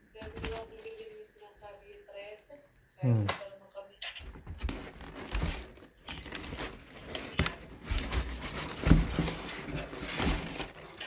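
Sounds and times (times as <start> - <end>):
packing paper rustling: 0.2 - 1.7, 4.2 - 11.0
knocks in cardboard box: 7.4 - 10.7.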